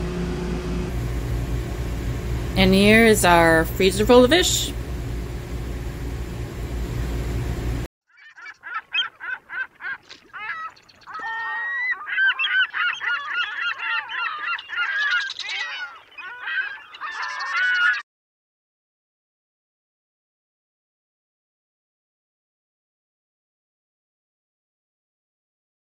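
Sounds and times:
steady low hum: 0:00.0 - 0:07.9
flock of birds calling: 0:08.1 - 0:18.0.

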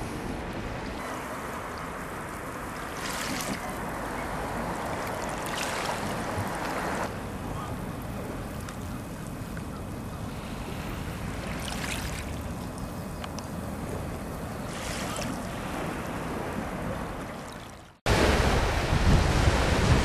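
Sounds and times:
sea waves washing onto shore: 0:00.0 - 0:20.0
shallow water lapping: 0:00.2 - 0:18.6
wind on microphone: 0:18.1 - 0:20.0.

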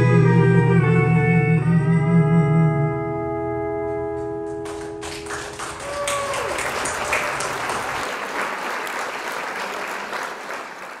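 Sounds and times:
audience applauding: 0:04.6 - 0:11.0.

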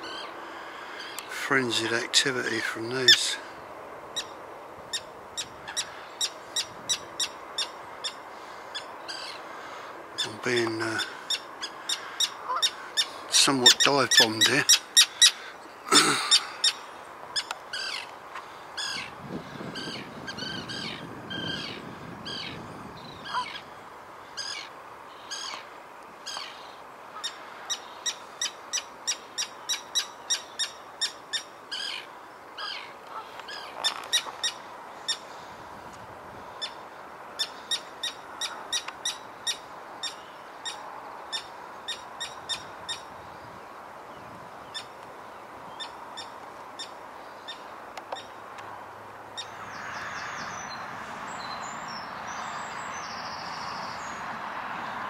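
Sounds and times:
terns giving harsh alarm calls: 0:00.0 - 0:02.0, 0:02.6 - 0:35.6, 0:36.4 - 0:43.5, 0:44.2 - 0:48.5, 0:49.3 - 0:54.2.

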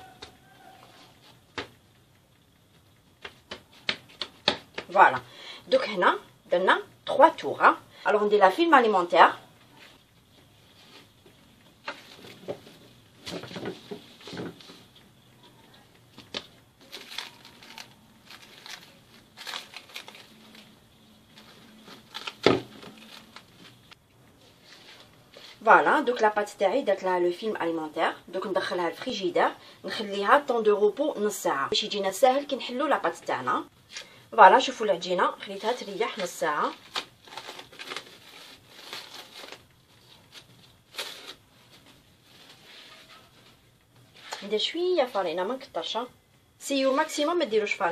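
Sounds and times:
cling film crinkling and rustling: 0:09.6 - 0:25.6, 0:35.6 - 0:44.5.

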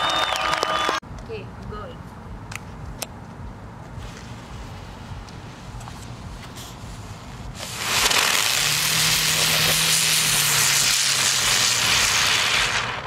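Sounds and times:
firework hissing: 0:06.5 - 0:13.0.

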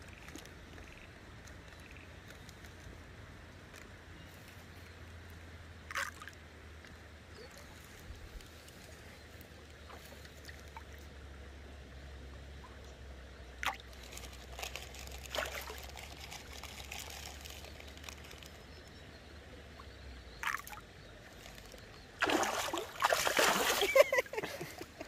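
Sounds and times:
water trickling and lapping: 0:00.0 - 0:03.0, 0:05.8 - 0:25.0
fish splashing: 0:13.6 - 0:18.6, 0:21.4 - 0:24.2.

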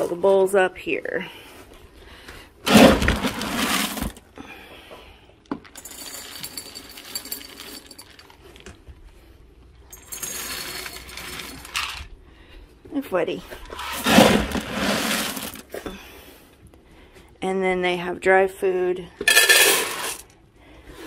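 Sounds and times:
kibble rustling: 0:02.7 - 0:04.2, 0:13.8 - 0:15.8
kibble rattling: 0:05.8 - 0:08.6.

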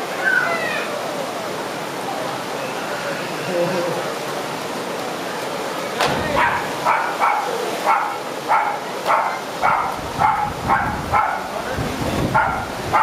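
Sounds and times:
waterfall rushing: 0:00.0 - 0:13.0
dog barking: 0:06.4 - 0:11.5, 0:12.3 - 0:13.0.

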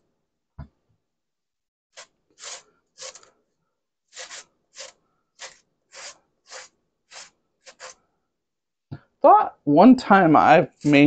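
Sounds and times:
potato grating strokes: 0:01.9 - 0:03.4, 0:04.1 - 0:08.0, 0:10.7 - 0:11.0.

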